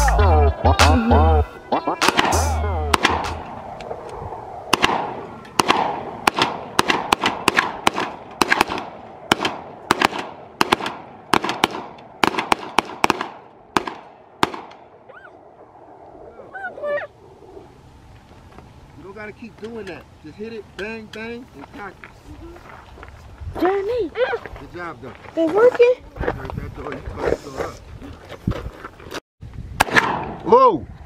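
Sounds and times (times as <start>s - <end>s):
music: 0.0s - 3.4s
rapid gunfire with echo: 2.0s - 3.4s, 4.7s - 14.7s.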